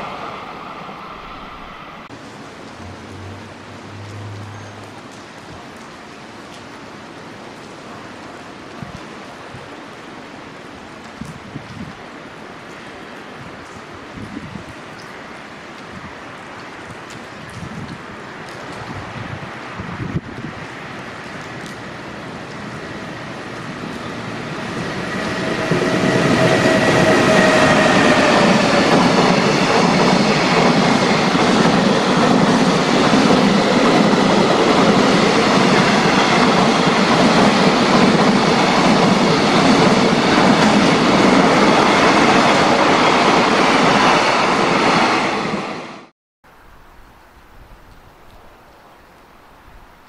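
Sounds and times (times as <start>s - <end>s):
falling whine: 0.0s - 5.4s
freight train passing: 0.0s - 6.5s, 20.5s - 46.1s.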